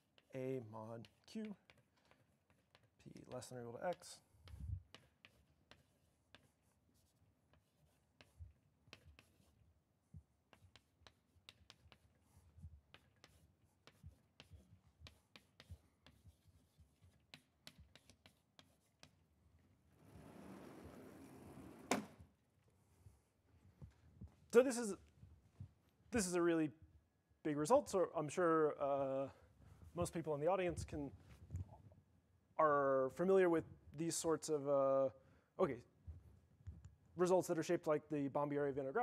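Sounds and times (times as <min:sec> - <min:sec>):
chalk tapping and scratching: 0:00.0 - 0:19.4, 0:20.1 - 0:22.0
blackboard panel sliding: 0:20.0 - 0:22.2.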